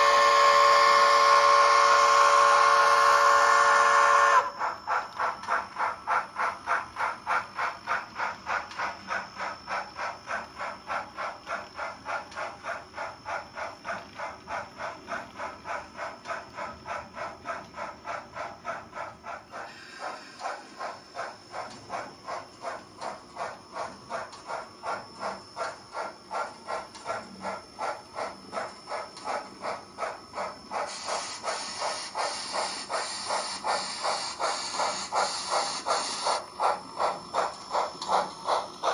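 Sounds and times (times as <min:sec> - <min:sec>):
model steam locomotive chuffing: 0:00.0 - 0:38.9.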